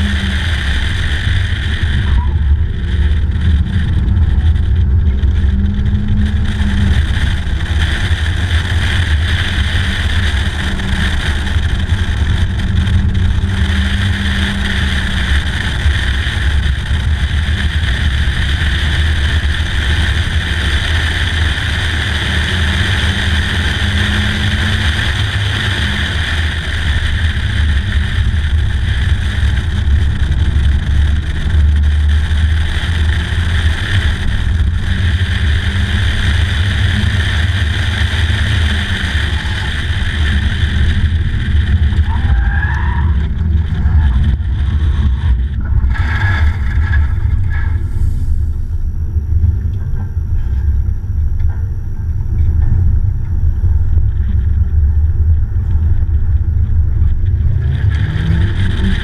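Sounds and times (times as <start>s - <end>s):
car engine running: 0.0s - 59.0s
wind rush on microphone: 0.0s - 59.0s.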